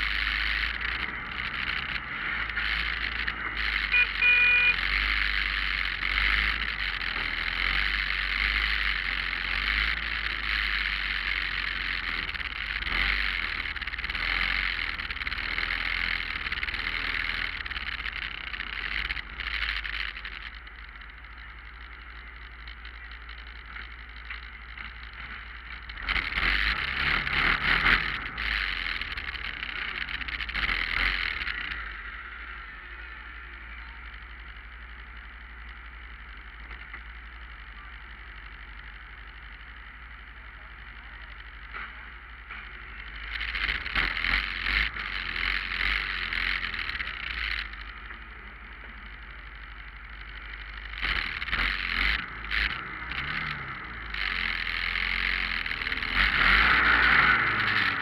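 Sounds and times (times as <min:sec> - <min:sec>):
motorcycle engines idling: 0:00.0 - 0:58.0.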